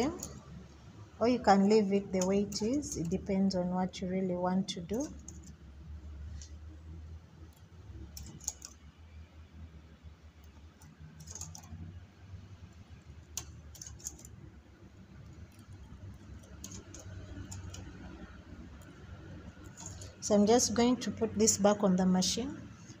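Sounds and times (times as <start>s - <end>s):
low steady hum: 0.0s - 23.0s
small metal clicks: 8.2s - 8.8s, 10.5s - 11.8s, 13.3s - 14.4s, 15.5s - 17.9s, 19.6s - 20.2s.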